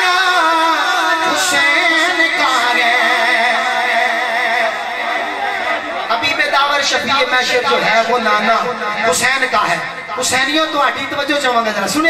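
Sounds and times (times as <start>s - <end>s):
man singing into a microphone: 0.0s - 5.0s.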